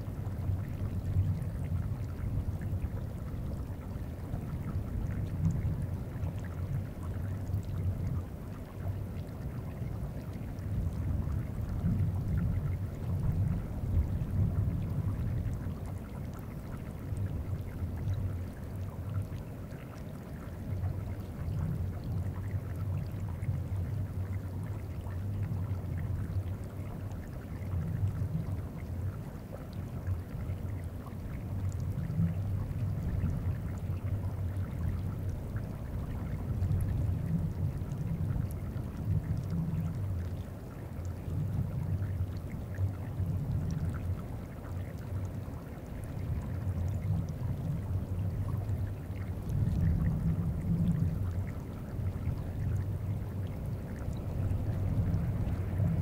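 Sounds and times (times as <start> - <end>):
faint trickling and ticking: 0.0 - 56.0
deep glacier rumble: 46.4 - 56.0.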